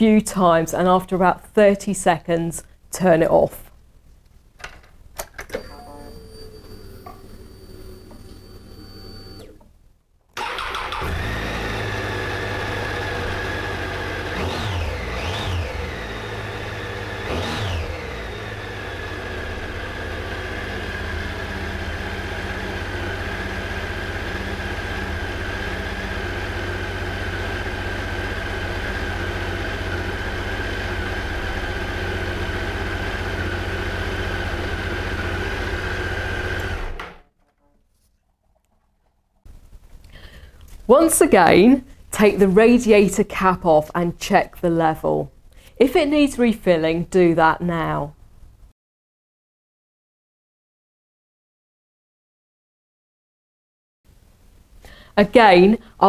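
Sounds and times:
motorcycle engine revving and idling: 0:10.6 - 0:37.0.

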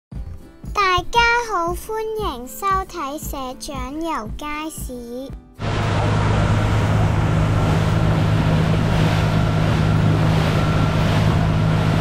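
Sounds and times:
boat engine drone: 0:05.6 - 0:12.0
rushing water: 0:05.6 - 0:12.0
wind: 0:05.6 - 0:12.0.

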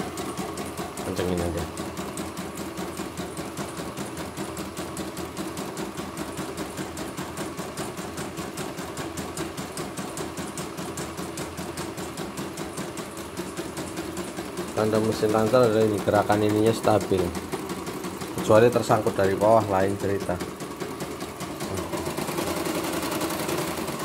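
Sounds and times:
embroidery machine stitching: 0:00.0 - 0:24.0.

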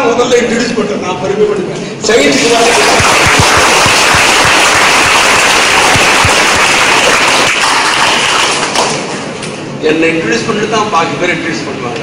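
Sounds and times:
audience applauding: 0:02.2 - 0:09.1.

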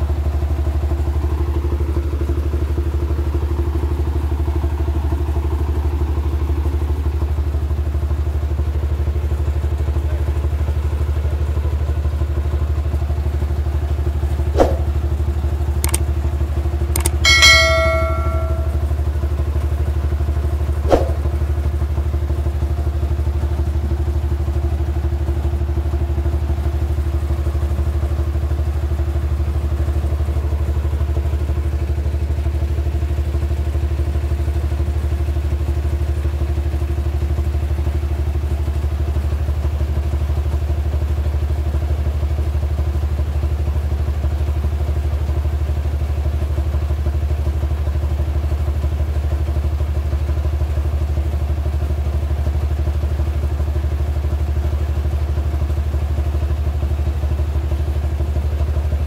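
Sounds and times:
sharp metallic knocks: 0:14.6 - 0:14.9, 0:17.0 - 0:18.9.

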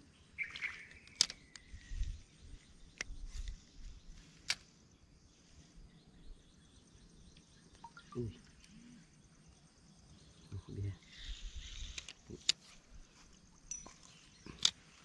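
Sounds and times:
faint high-pitched tone: 0:07.8 - 0:08.9.

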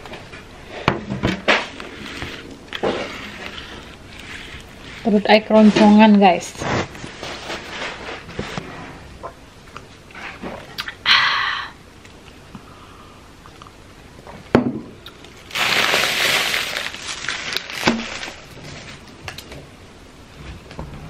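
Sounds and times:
crinkling rustle: 0:15.2 - 0:19.7.

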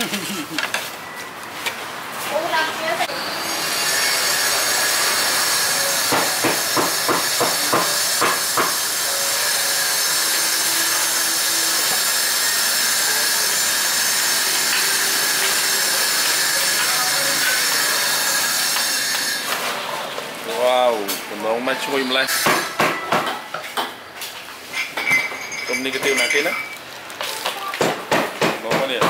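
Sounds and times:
loud steady hiss: 0:03.1 - 0:18.7.

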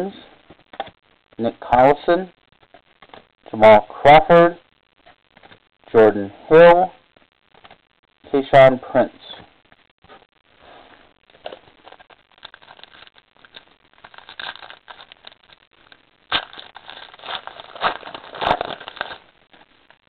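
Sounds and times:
cards and foil wrapper rustling: 0:10.1 - 0:20.0.

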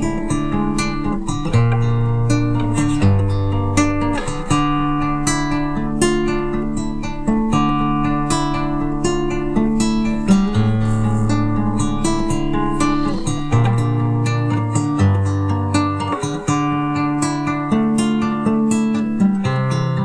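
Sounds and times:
classical guitar plucked: 0:00.0 - 0:20.0.

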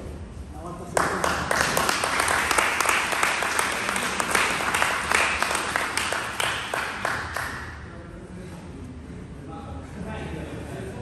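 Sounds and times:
crowd applauding: 0:01.0 - 0:07.8.

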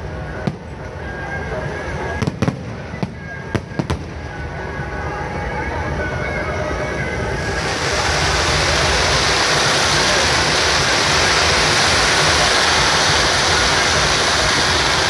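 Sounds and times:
aerial fireworks bursting and crackling: 0:00.0 - 0:05.5, 0:06.2 - 0:15.0.

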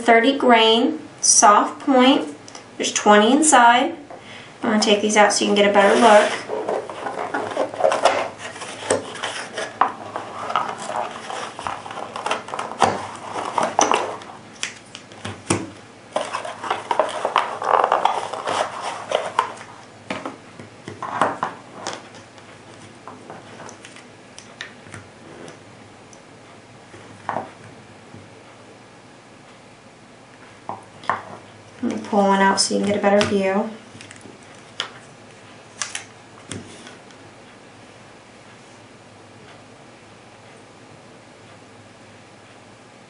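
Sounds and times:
cardboard box rustling: 0:05.8 - 0:14.3, 0:16.2 - 0:19.7.

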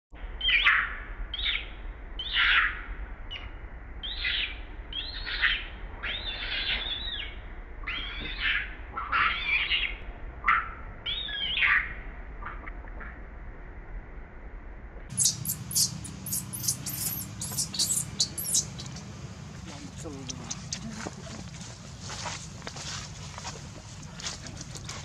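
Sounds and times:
baby monkey squealing: 0:15.1 - 0:19.1.

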